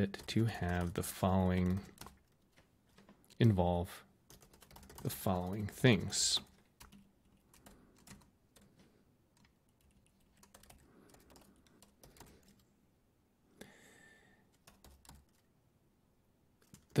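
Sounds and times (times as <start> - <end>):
keyboard typing: 0.0 - 3.4, 4.3 - 12.7, 14.5 - 15.5, 16.6 - 17.0.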